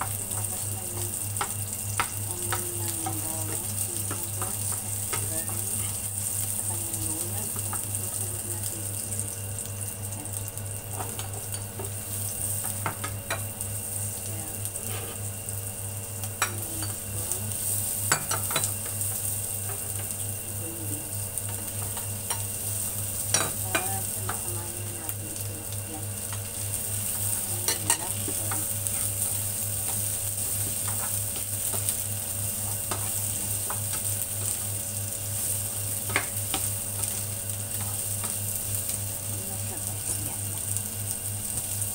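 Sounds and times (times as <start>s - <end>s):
spatula clacking against pan: 0.0s - 3.2s
food sizzling in hot oil: 0.0s - 41.9s
spatula scraping a pan: 14.8s - 15.3s.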